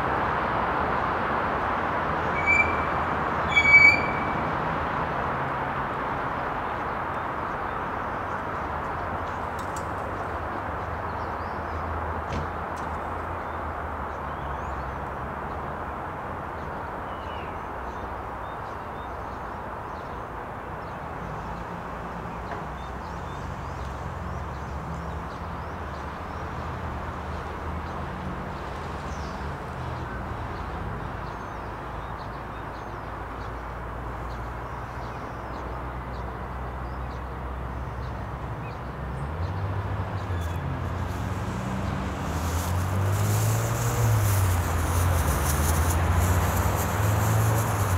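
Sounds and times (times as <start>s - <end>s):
distant traffic rumble: 0.0s - 47.9s.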